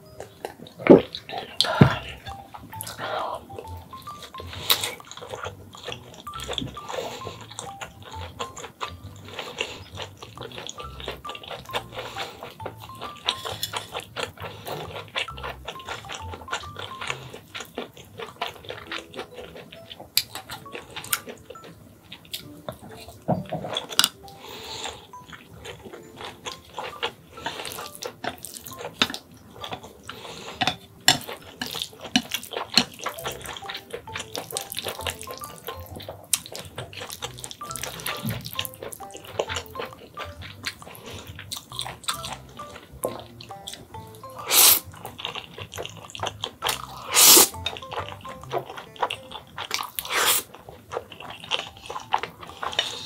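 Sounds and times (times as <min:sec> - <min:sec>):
faint background music: 0:00.0 - 0:53.0
wet chewing and smacking: 0:00.0 - 0:53.0
noodle slurp: 0:44.3 - 0:49.2, 0:49.9 - 0:50.6.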